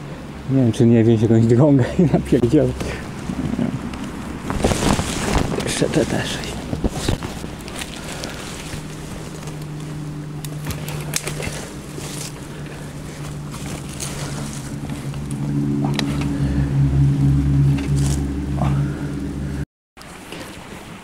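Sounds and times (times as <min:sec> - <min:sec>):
low motor hum: 0:00.0 - 0:19.7
branches snapping and rustling: 0:02.7 - 0:16.5, 0:17.8 - 0:18.8.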